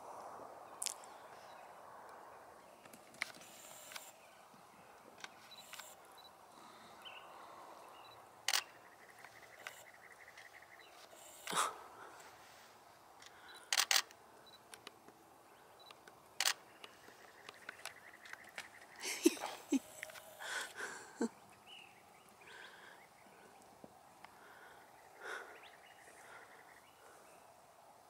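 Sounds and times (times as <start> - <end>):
faint bird chirps: 0.7 - 11.8
camera shutter clicking: 8.5 - 8.7, 13.7 - 14.1.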